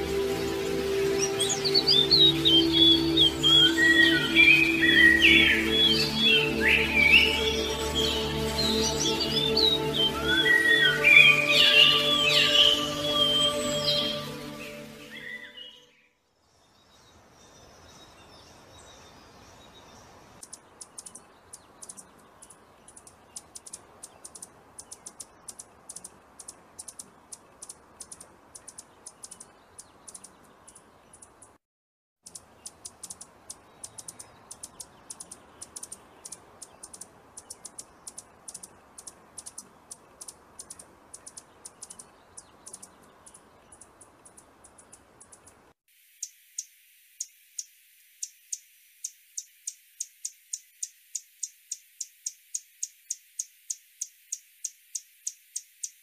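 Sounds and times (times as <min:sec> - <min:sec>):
hummingbird chip calls: 0:00.6 - 0:15.8, 0:19.8 - 0:31.6, 0:32.3 - 0:56.0.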